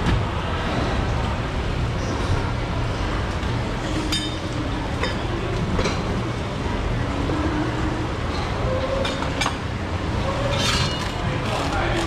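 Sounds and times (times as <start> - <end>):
faint voices: 10.3 - 12.0.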